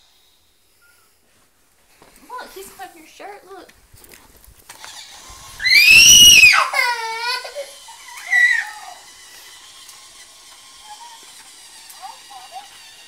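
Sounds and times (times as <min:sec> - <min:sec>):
toddler crying: 0:05.6 - 0:09.1, 0:10.8 - 0:11.3
toddler screaming: 0:05.6 - 0:09.1, 0:10.8 - 0:11.3.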